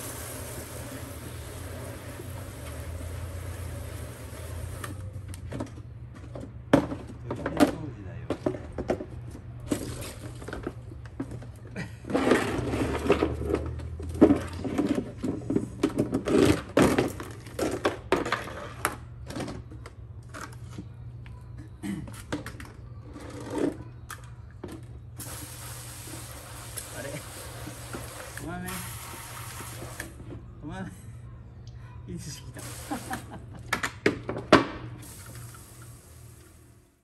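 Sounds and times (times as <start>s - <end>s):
garden hose spray hissing: 0.0s - 5.0s, 25.2s - 30.2s, 32.6s - 33.4s, 35.0s - 36.9s.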